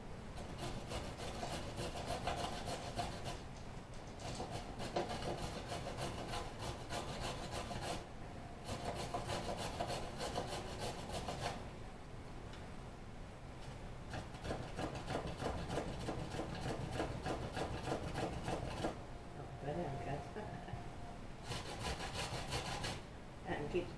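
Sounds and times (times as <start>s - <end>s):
vegetable scraping on grater: 0.4s - 3.4s, 4.2s - 8.0s, 8.6s - 11.6s, 14.1s - 19.0s, 21.4s - 23.0s.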